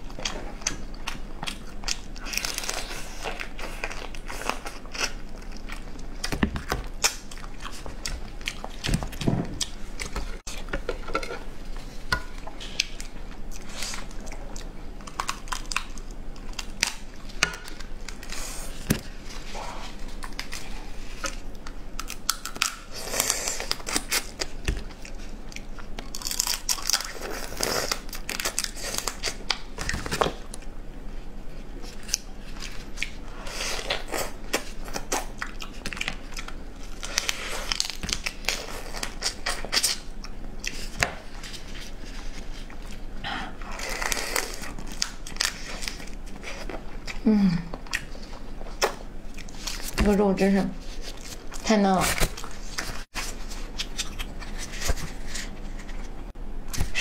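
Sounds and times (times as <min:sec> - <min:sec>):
biting and chewing: 0:00.1 - 0:11.4.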